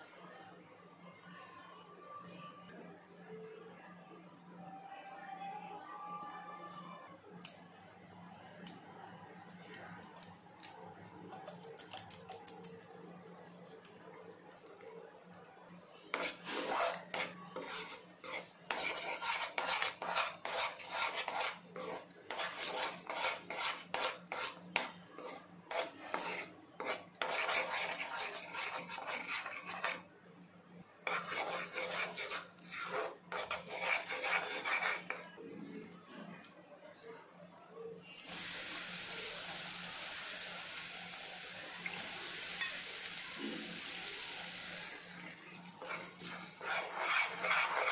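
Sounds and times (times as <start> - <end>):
spatula scraping thick paste in pan: 16.1 - 30.1, 31.0 - 35.3, 45.0 - 47.9.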